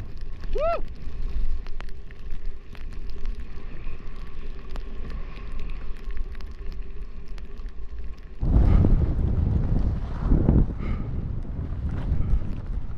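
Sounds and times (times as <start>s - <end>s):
faint ticks: 0.0s - 8.5s
skis scraping over snow: 0.0s - 12.9s
wind buffeting microphone: 8.4s - 12.9s.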